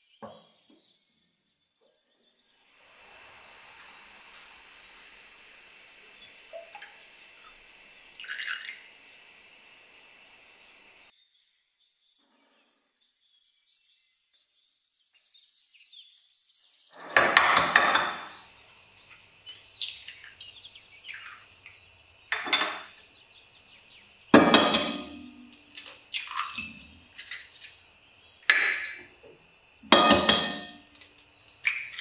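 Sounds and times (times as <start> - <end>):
dishes and utensils clinking: 17.0 - 18.4, 22.3 - 23.1, 24.4 - 27.8, 28.4 - 29.2, 29.8 - 32.0.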